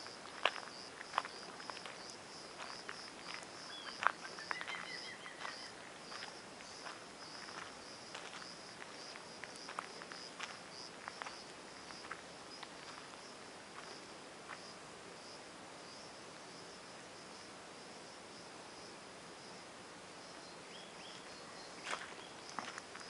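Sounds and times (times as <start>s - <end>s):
footsteps on gravel: 0.0s - 13.2s, 13.8s - 14.6s, 21.8s - 23.0s
insects chirring: 0.0s - 23.0s.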